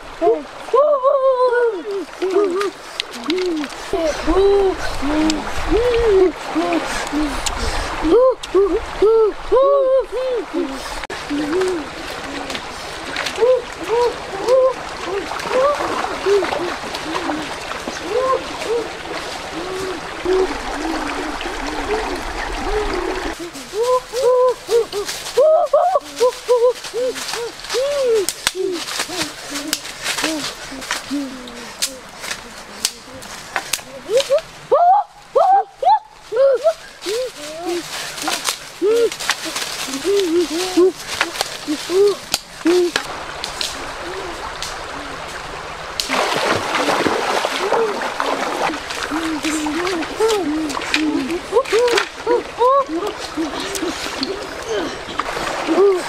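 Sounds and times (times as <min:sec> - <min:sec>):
shallow stream rushing: 0:00.0 - 0:56.0
dry sticks clicking: 0:27.2 - 0:34.4, 0:41.1 - 0:43.8.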